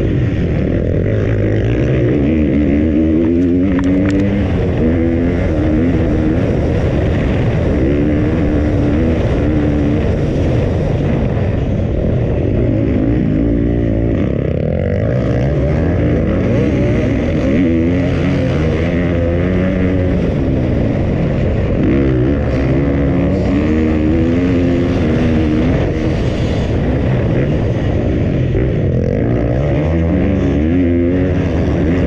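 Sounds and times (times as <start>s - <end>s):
motorcycle engine revving: 0.0s - 32.0s.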